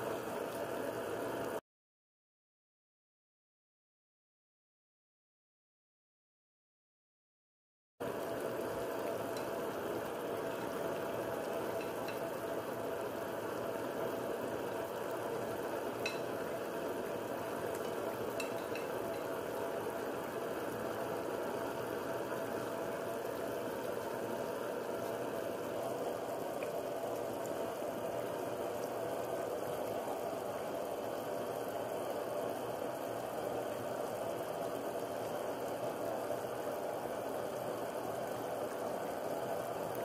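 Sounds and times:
meat sizzling in a pan: 8.0s - 40.0s.

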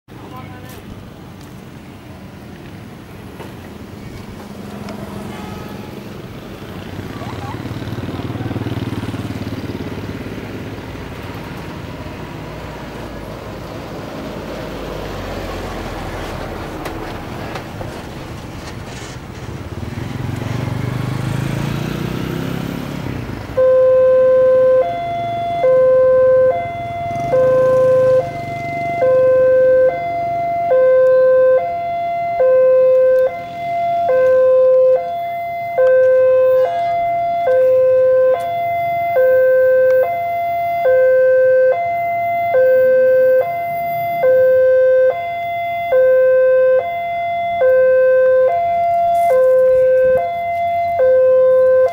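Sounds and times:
train rumble: 10.8s - 20.6s.

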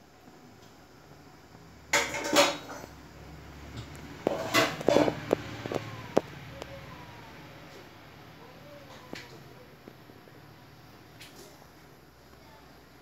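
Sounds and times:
steel kitchenware clattering: 1.9s - 3.0s, 4.3s - 5.2s.

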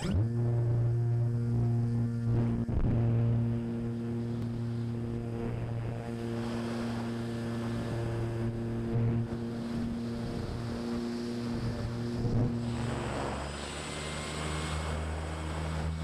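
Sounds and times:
model plane motor and propeller: 0.0s - 16.0s.

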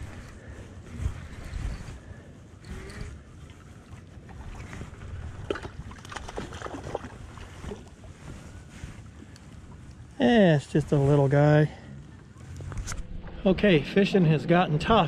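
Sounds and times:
wind buffeting microphone: 0.0s - 10.2s
water lapping: 0.0s - 15.0s.

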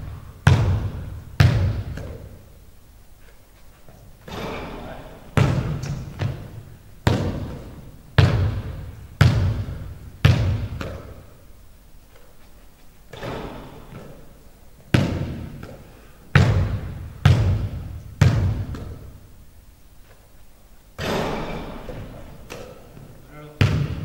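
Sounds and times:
basketball bouncing on hardwood floor: 0.0s - 2.4s, 5.4s - 11.3s, 14.9s - 19.2s, 23.6s - 24.0s.

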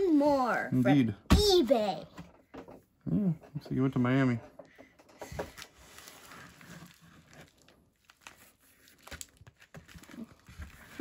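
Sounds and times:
rustling and crinkling packaging: 5.1s - 11.0s.

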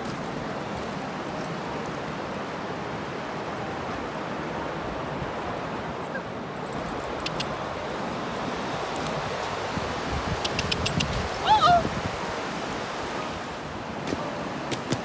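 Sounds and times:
ocean surf washing: 0.0s - 15.0s
faint clicks: 7.2s - 7.6s.

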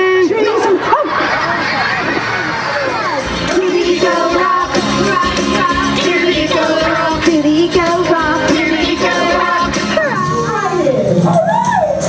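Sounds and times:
steady drum beat: 3.0s - 11.4s
upbeat children's pop song: 3.0s - 12.0s
person singing: 3.5s - 10.4s.

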